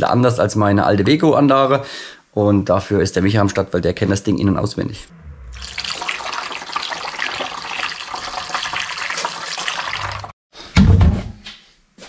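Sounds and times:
liquid pouring and splashing: 5.5s - 10.4s.

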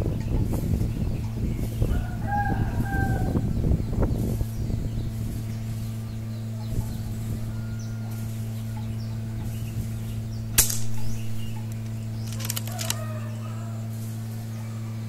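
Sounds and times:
steady low hum: 0.0s - 15.0s
air rifle shot: 10.6s - 11.0s
quick run of clicks: 11.6s - 13.2s.

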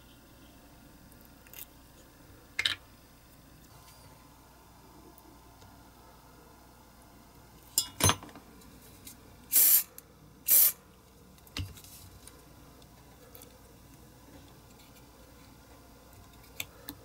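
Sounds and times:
hissing bursts of air spray: 9.5s - 9.9s, 10.5s - 10.8s.

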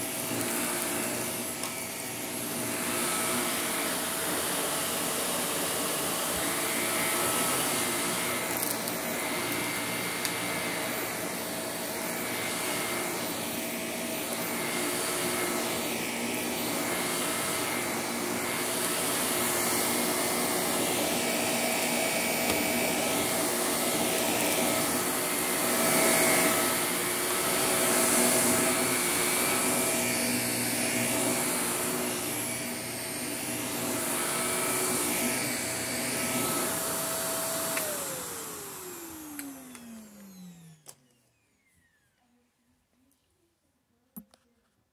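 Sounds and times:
vacuum cleaner running: 0.0s - 42.7s.

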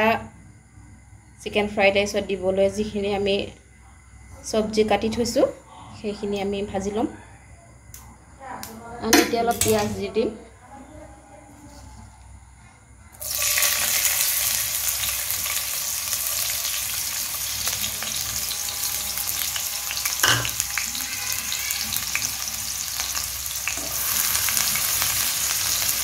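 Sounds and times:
onions sizzling in hot oil: 13.2s - 26.0s
sharp knock against pan: 20.2s - 20.6s.

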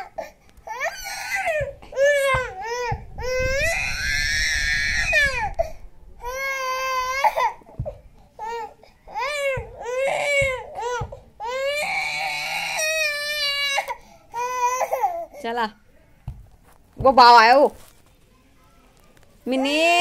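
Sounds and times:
toddler crying and wailing: 0.0s - 15.3s.

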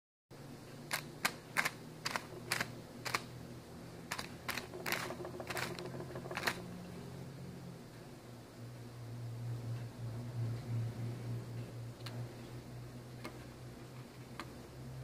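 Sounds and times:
pigeon pecking: 4.1s - 6.7s.

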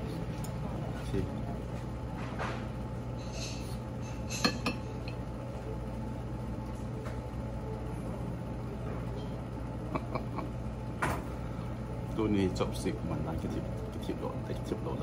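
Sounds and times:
low room hum: 0.0s - 15.0s
tableware clinking: 3.2s - 5.2s.

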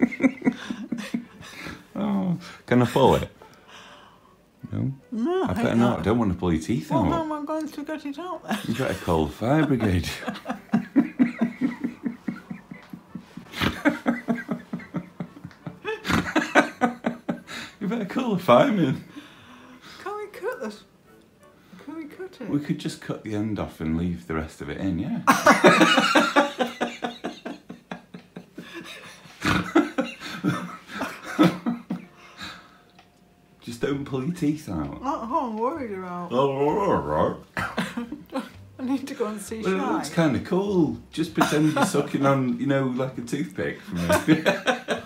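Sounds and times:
woman laughing in breathy bursts: 0.0s - 1.8s
woman laughing: 9.6s - 17.4s.

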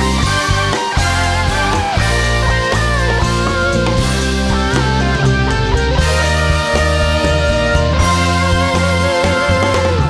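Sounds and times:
guitar with bending notes: 0.0s - 10.0s
steady bass line: 0.0s - 10.0s.

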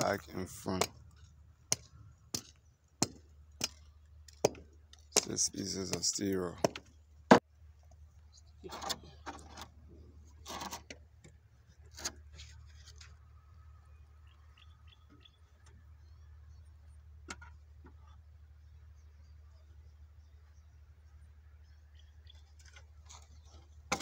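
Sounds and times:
tool knocking and scraping concrete: 22.6s - 24.0s.

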